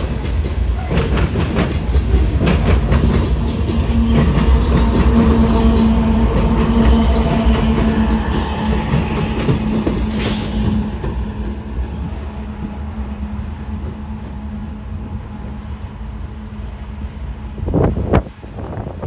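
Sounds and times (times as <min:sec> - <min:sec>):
diesel locomotive engine hum: 0:00.0 - 0:19.0
wheels rumbling on rails: 0:00.0 - 0:19.0
loud rush: 0:02.0 - 0:13.6.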